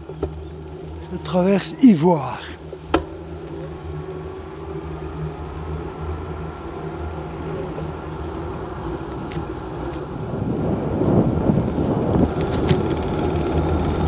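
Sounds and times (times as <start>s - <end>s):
bicycle rolling on asphalt: 0.0s - 14.0s
wind on microphone: 7.1s - 14.0s.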